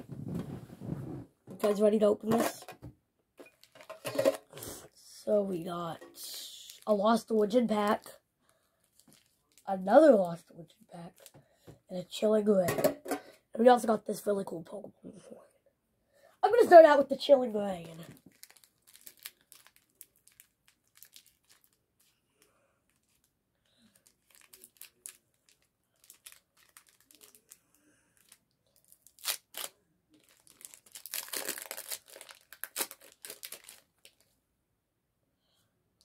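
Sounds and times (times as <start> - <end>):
foil wrapper crinkling and tearing: 8.8 - 9.9, 17.8 - 34.3.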